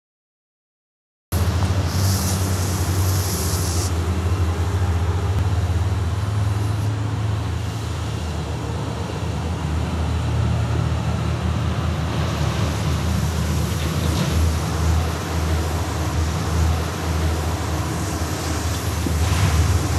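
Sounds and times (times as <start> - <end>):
firework fuse sizzling: 1.4 - 4.1
smoke hissing from tube: 1.4 - 4.4, 13.0 - 19.9
constant low rumble: 1.4 - 19.9.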